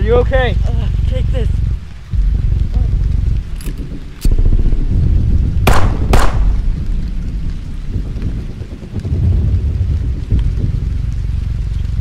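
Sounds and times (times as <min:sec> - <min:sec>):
distant shellfire rumble: 0:01.6 - 0:12.0
loud sharp cracks: 0:05.7 - 0:06.8.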